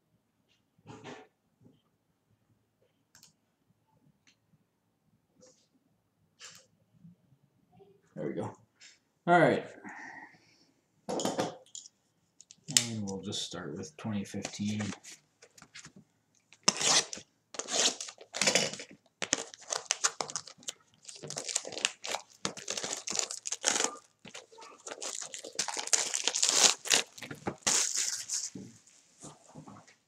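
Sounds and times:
plastic shrink wrap crinkling: 14.4s - 29.0s.

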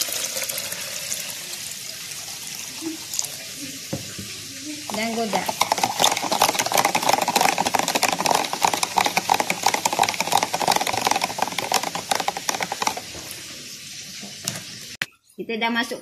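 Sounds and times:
spoon stirring in plastic jug: 4.9s - 13.6s.

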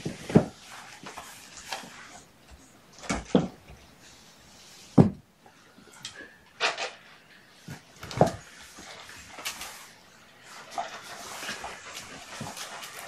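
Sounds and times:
dull thuds and knocks: 3.0s - 3.6s, 5.0s - 5.2s.

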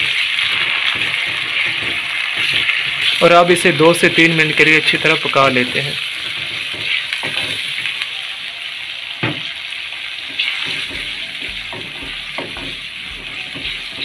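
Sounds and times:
wooden spatula knocking pan: 0.0s - 3.1s, 10.4s - 14.0s
food sizzling in oil: 0.0s - 14.0s.

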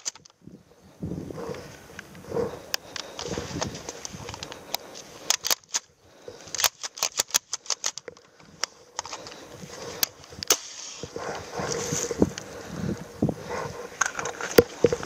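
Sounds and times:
airsoft rifle mechanical clicks: 0.0s - 0.4s, 1.5s - 13.1s, 14.0s - 15.0s.

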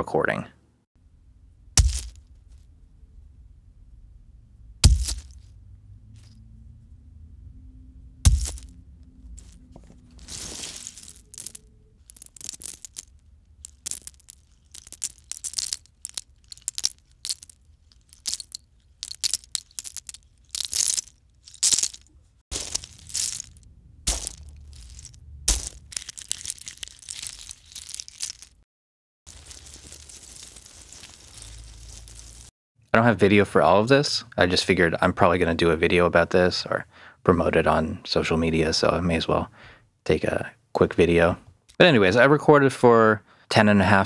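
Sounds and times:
acorn shells crunching and rattling: 1.8s - 2.3s, 4.8s - 5.5s, 8.3s - 28.6s, 29.3s - 32.5s.

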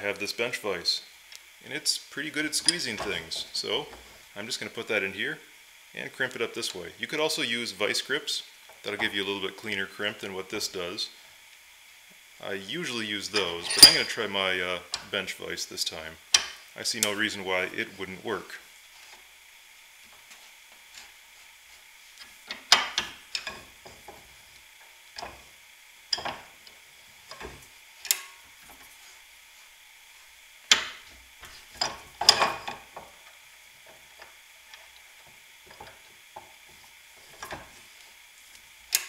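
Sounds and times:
metallic clicks taps and scrapes: 22.2s - 24.2s, 26.1s - 26.4s.

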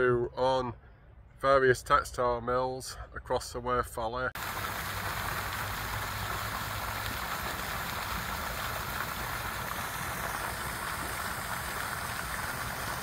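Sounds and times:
fountain splashing into pond: 4.4s - 13.0s.

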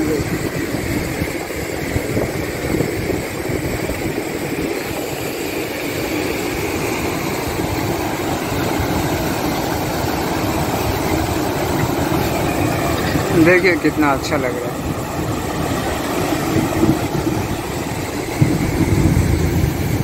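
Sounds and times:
turbulent river water churning: 0.0s - 20.0s
water pouring through weir: 0.0s - 20.0s.

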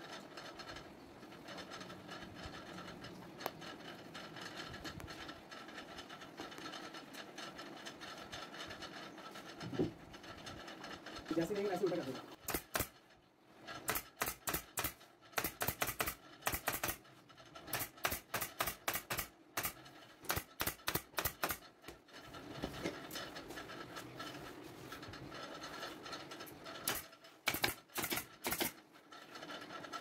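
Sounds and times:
staple gun firing into wood: 12.5s - 12.9s, 13.9s - 17.0s, 17.7s - 21.6s, 26.9s - 28.8s.

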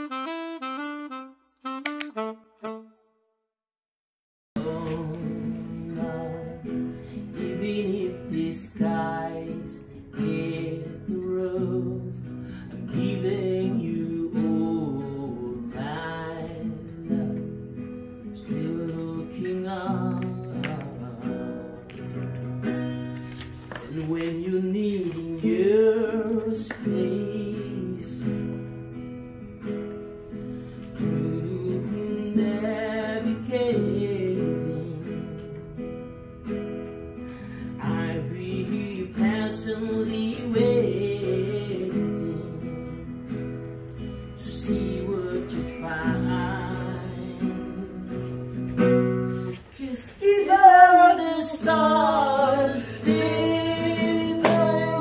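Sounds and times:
man singing with vibrato: 4.6s - 17.5s, 18.4s - 21.9s, 23.8s - 28.4s, 31.0s - 35.6s, 37.5s - 43.2s, 44.4s - 55.0s
strummed acoustic guitar: 4.6s - 55.0s.

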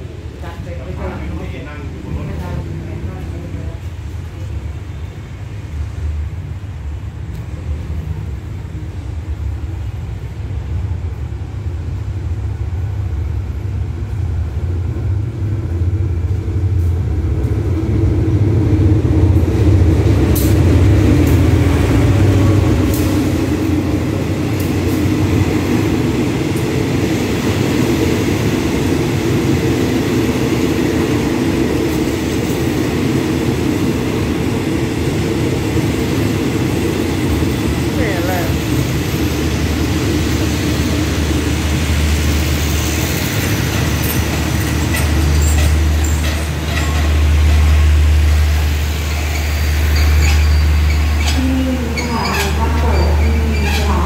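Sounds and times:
diesel locomotive engine rumble: 0.0s - 54.0s
sharp clicks of train: 7.2s - 7.6s, 16.2s - 18.2s, 19.3s - 26.8s, 42.2s - 54.0s
wheels rolling on rails: 43.4s - 48.0s, 49.1s - 54.0s.

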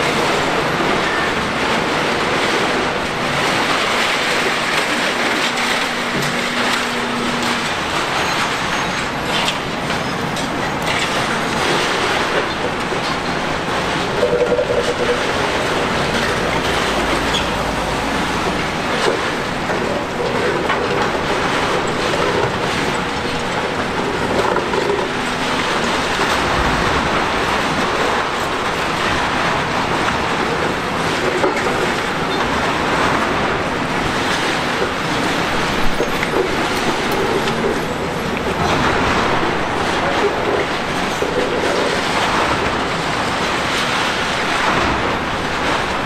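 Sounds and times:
demolition excavator din: 0.0s - 46.0s
short machine squeals: 8.1s - 9.2s.

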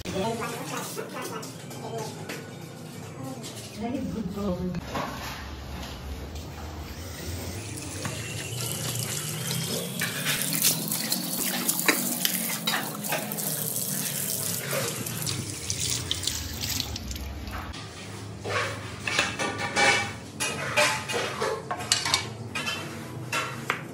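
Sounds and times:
tap water running into sink: 7.8s - 17.7s.

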